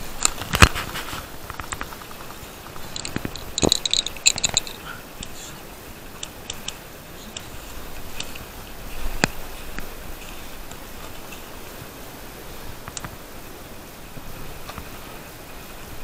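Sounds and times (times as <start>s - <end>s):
packet clicks and crackling: 0.2s - 5.5s
faint ticks: 1.4s - 11.8s, 12.8s - 13.2s.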